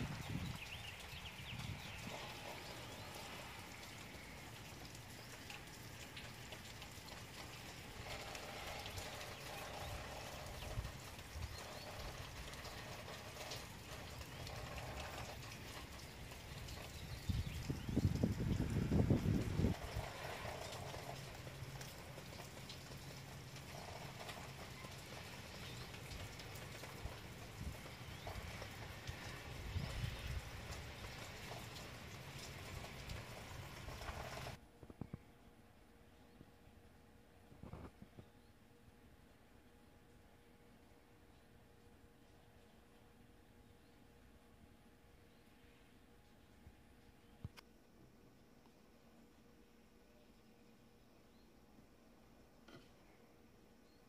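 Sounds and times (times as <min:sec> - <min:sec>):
rain falling: 0:00.0 - 0:34.6
low steady hum: 0:00.0 - 0:54.0.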